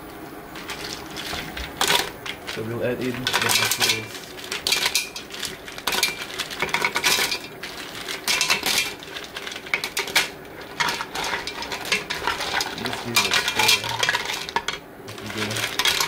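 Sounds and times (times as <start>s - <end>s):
wooden spoon pushing mussels: 0.5s - 16.0s
mussel shells clattering in metal pot: 0.6s - 16.0s.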